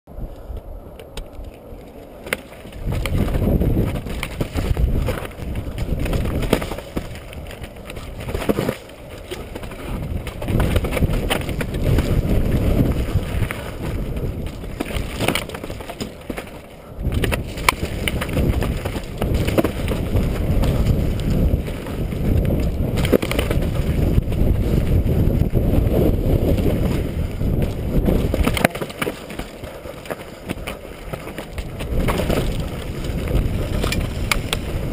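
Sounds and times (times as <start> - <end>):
wind rumbling on microphone: 0.1 - 34.9
bike rattling over rocks: 0.4 - 34.9.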